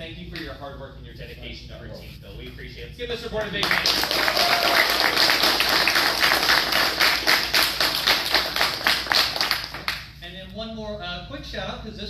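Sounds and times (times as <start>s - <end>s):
people applauding: 3.6s - 10.0s.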